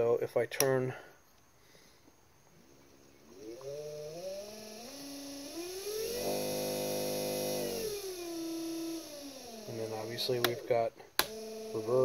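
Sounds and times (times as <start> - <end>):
electric motor whine: 2.7 - 12.0.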